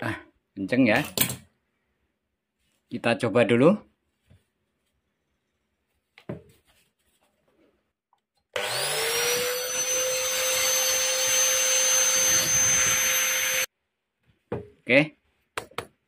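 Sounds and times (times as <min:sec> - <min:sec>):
angle grinder whining: 0:08.5 - 0:13.7.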